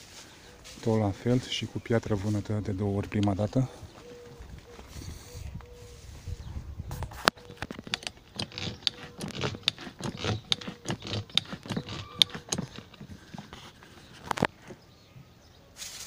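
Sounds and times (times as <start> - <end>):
footsteps: 0.0 - 7.9
rustling foliage: 0.0 - 16.0.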